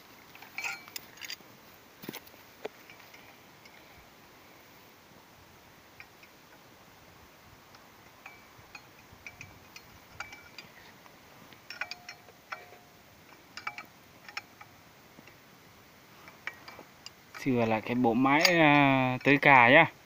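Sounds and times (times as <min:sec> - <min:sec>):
metal wrench clinking: 0:00.3 - 0:01.4, 0:08.2 - 0:10.8, 0:11.6 - 0:14.8, 0:16.2 - 0:19.5.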